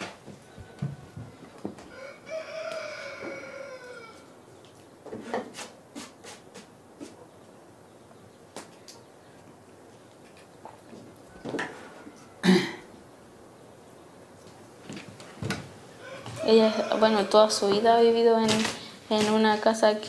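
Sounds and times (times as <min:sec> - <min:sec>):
rooster crowing: 0:00.4 - 0:04.4, 0:11.3 - 0:12.5, 0:16.0 - 0:18.1.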